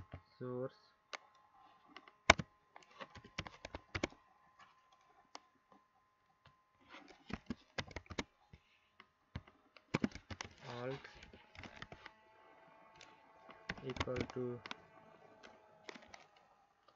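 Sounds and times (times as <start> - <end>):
keyboard keys clicking: 3.2 - 4.2, 7.3 - 8.3, 13.0 - 16.4.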